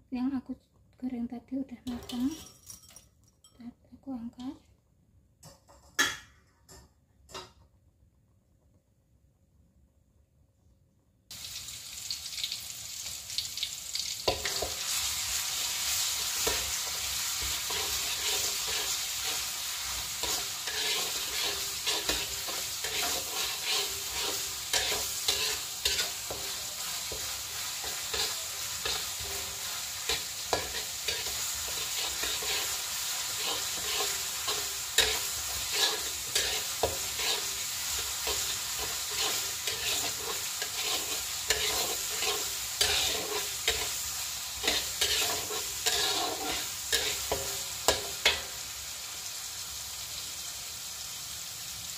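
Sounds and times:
spice paste sizzling in oil: 11.3 - 51.9
metal spatula scraping wok: 14.3 - 48.6.

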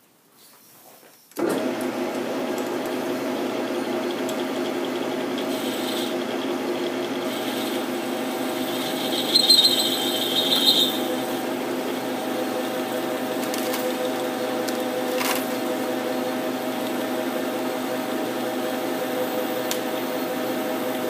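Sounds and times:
metal lathe gear hum: 1.5 - 21.0
cutting tool squealing on metal: 8.8 - 11.1.

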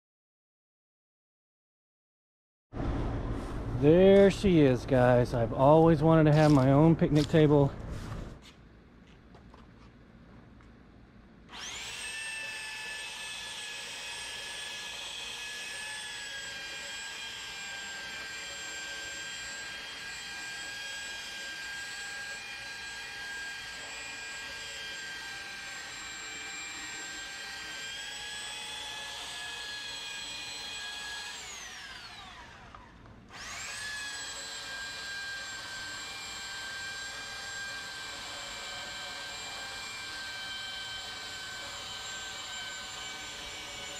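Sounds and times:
electric sander whining on wood: 11.5 - 43.9.

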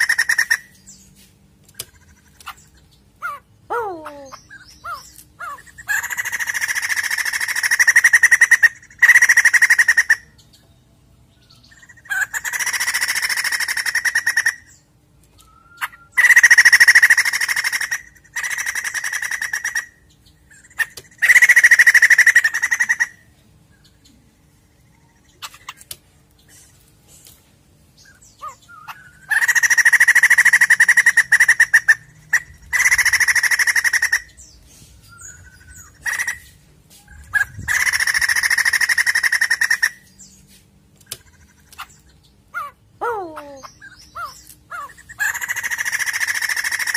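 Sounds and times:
bird rattling cackles: 0.0 - 0.7, 4.8 - 10.2, 12.0 - 14.6, 15.8 - 19.9, 20.6 - 23.2, 28.4 - 34.3, 35.8 - 36.5, 37.2 - 40.0, 44.2 - 46.9.

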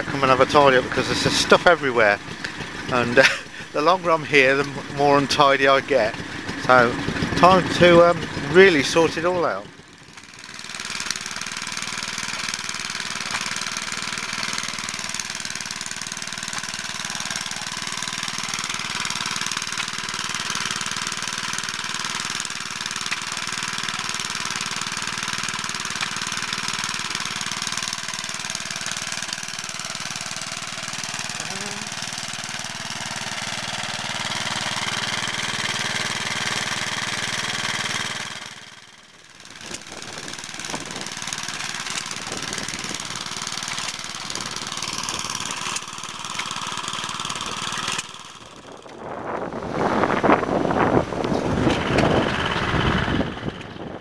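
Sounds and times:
small stationary engines running: 0.0 - 54.0.

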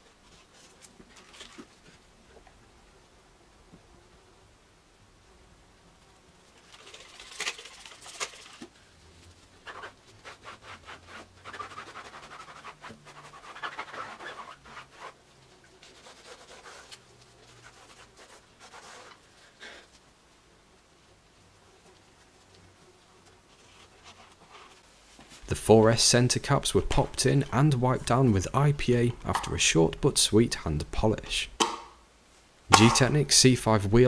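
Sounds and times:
cloth scrubbing a wheel: 6.5 - 19.6.

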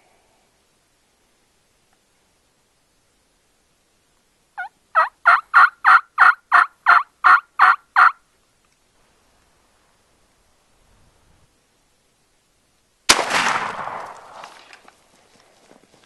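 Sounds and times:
turkey yelping: 4.6 - 8.2.

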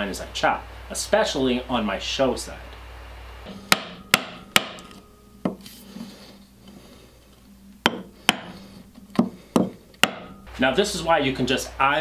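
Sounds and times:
mallet striking chisel: 3.5 - 5.8, 7.8 - 10.5.

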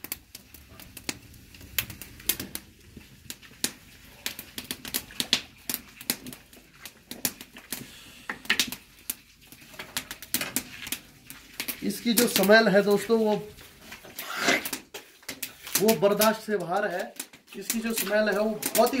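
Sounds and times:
wood fire crackling: 0.0 - 19.0.

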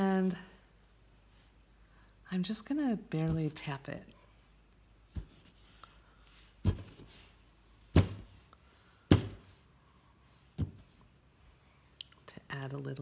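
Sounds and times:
stamping block knocking: 9.1 - 9.5.

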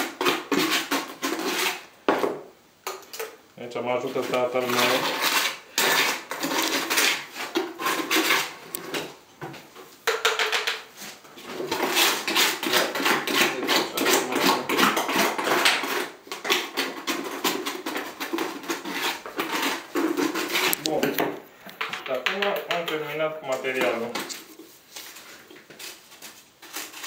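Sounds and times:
grout scraping and knocking: 0.0 - 27.0.

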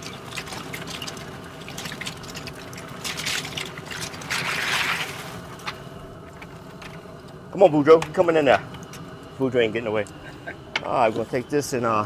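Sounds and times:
crawfish clattering and splashing: 0.0 - 7.1
boiling pot rushing: 0.0 - 12.0.

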